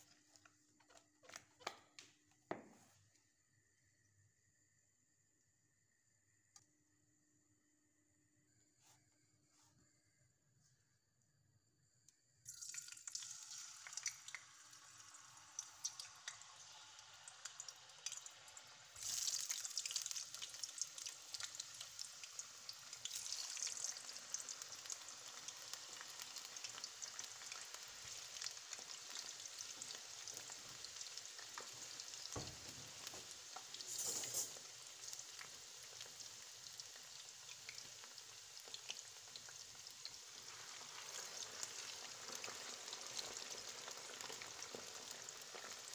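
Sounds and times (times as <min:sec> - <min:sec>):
potatoes sizzling in hot oil: 0:12.5 - 0:45.9.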